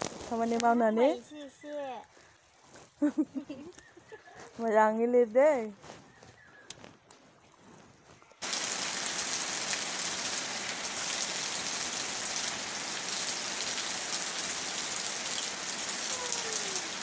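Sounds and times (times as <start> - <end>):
heavy rain pouring: 8.4 - 17.0
water splashing off roof edges: 8.4 - 17.0.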